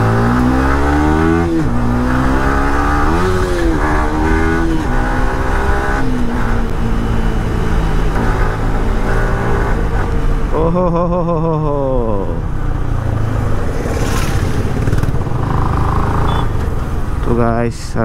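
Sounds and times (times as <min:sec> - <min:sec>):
motorcycle engine accelerating: 0:00.0 - 0:17.4.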